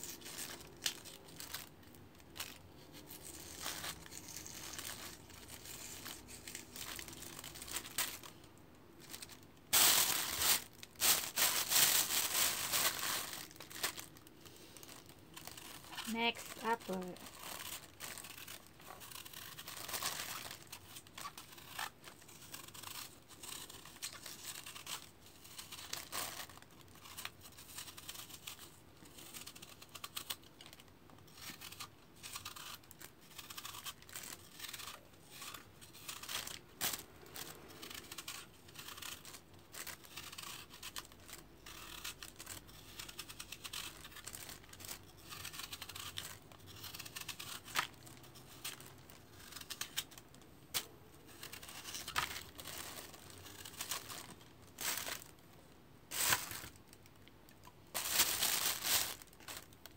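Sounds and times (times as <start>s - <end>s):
knife peeling an apple: 9.9s - 54.5s.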